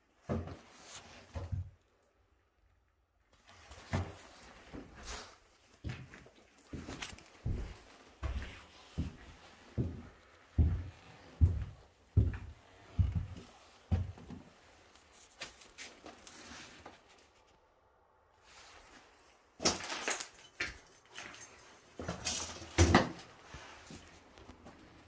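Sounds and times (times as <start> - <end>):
footsteps: 3.7 - 17.4
objects knocking and rustling: 19.6 - 23.4.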